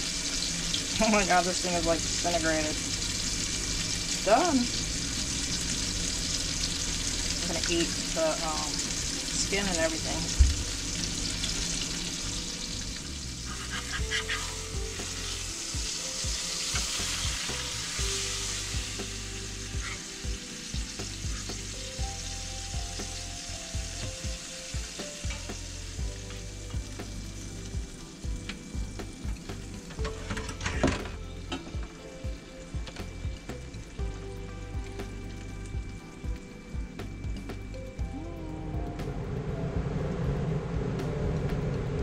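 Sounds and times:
food sizzling in a frying pan: 0:00.0 - 0:38.0.

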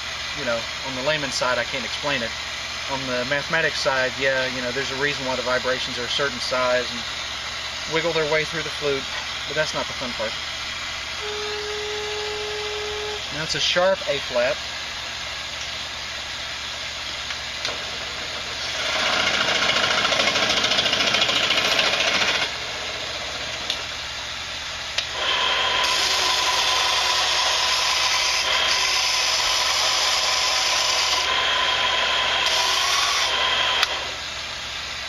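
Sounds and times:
power tool whining: 0:10.6 - 0:13.5, 0:17.6 - 0:23.9, 0:25.0 - 0:34.3.

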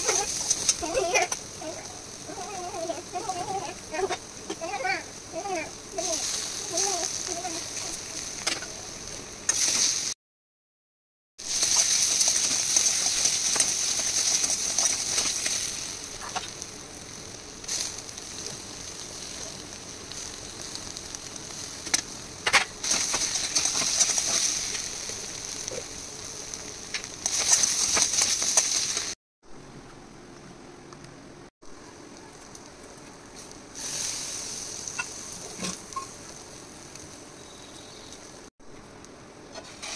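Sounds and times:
food sizzling in a pan: 0:00.0 - 0:10.2, 0:11.4 - 0:29.2, 0:32.2 - 0:38.5
spatula scraping a pan: 0:39.5 - 0:39.9.

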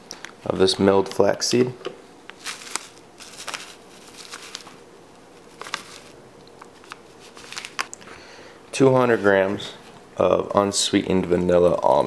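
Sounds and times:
bag crinkling and tapping: 0:02.3 - 0:04.8.

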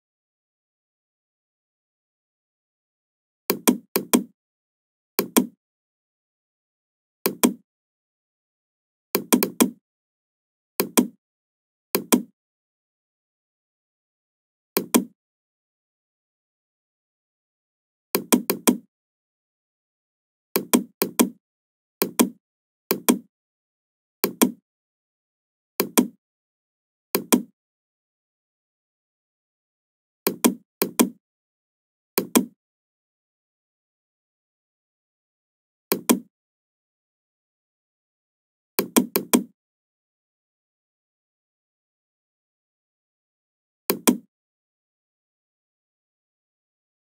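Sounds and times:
computer mouse clicking: 0:12.0 - 0:12.3, 0:43.9 - 0:44.2.

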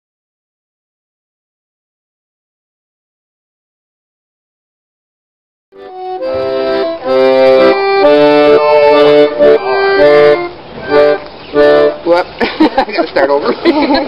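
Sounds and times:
piano accordion playing: 0:05.8 - 0:12.4.

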